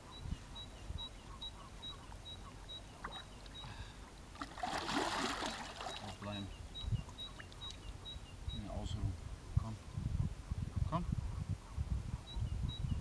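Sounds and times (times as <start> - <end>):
faint water sounds: 0.1 - 10.0
water splash: 4.4 - 6.2.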